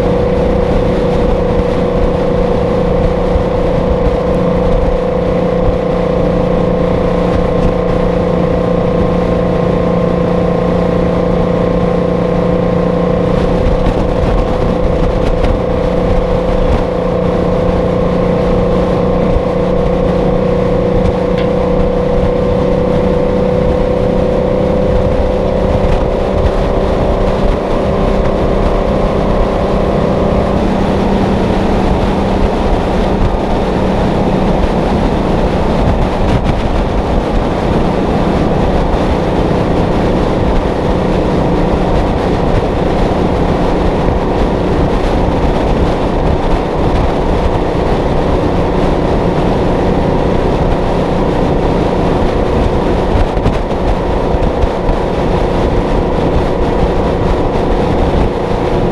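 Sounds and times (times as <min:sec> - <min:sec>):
truck engine drone: 0:00.0 - 0:58.9
wind and road rush: 0:00.0 - 0:58.9.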